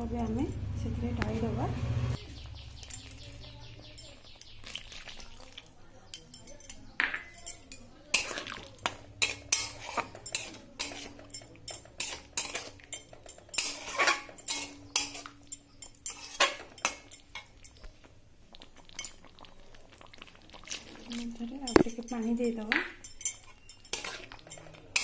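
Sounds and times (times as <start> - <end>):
spatula scraping metal pan: 9.2 - 17.2, 23.0 - 25.0.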